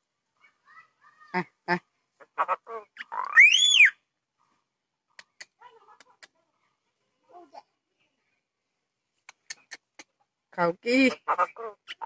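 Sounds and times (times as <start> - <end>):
myna harsh calls: 2.2 - 4.0, 11.0 - 12.0
bird whistle rising and falling: 3.3 - 4.0.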